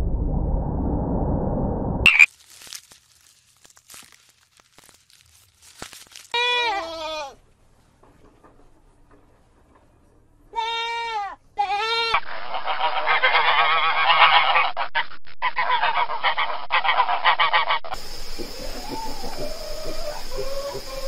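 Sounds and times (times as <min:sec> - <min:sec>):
goat bleating: 0:06.4 - 0:07.4, 0:10.5 - 0:12.2
chicken calling: 0:15.5 - 0:21.0
swans honking: 0:15.6 - 0:21.0.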